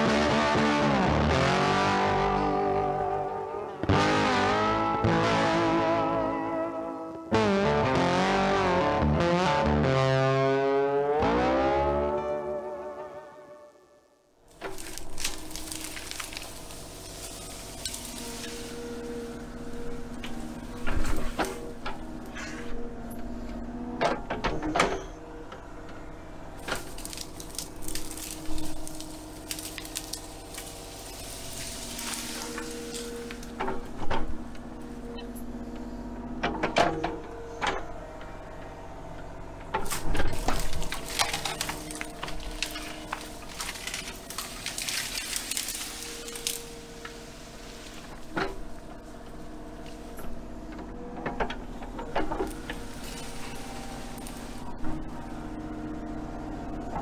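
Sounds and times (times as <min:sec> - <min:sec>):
branches cracking: 0:14.5 - 0:22.1, 0:26.6 - 0:34.0, 0:39.8 - 0:50.1, 0:52.2 - 0:54.7
excavator diesel engine running: 0:14.5 - 0:57.0
bucket scraping and rustling brush: 0:14.6 - 0:21.8, 0:26.7 - 0:33.6, 0:39.8 - 0:48.3, 0:52.4 - 0:54.7.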